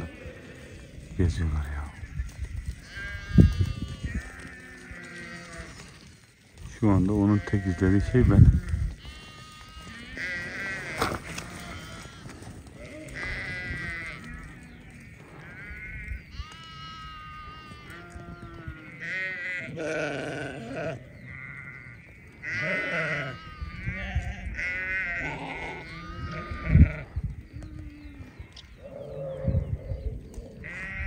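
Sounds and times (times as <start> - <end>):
sheep bleating: 0.0 - 6.2, 7.0 - 27.1, 30.6 - 31.0.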